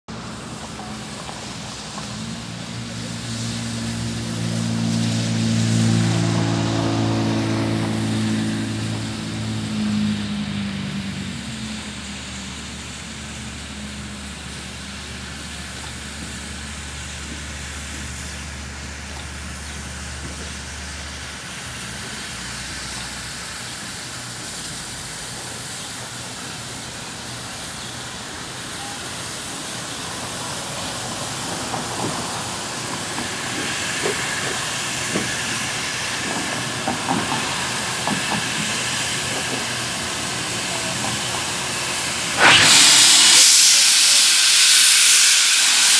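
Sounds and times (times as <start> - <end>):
steam hissing: 0.1 - 45.9
locomotive clanks and clicks: 31.0 - 41.6.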